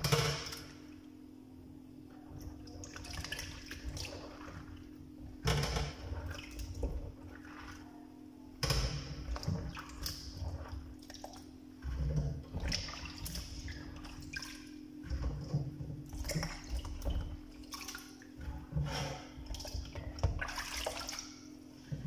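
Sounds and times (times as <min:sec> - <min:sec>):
water sloshing in plastic basin: 0:02.0 - 0:22.0.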